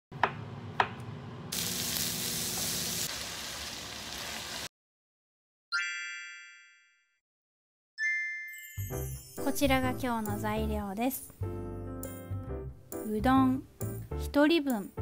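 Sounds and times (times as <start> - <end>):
noodles sizzling in a frying pan: 1.5 - 4.7
bright chime: 8.0 - 9.6.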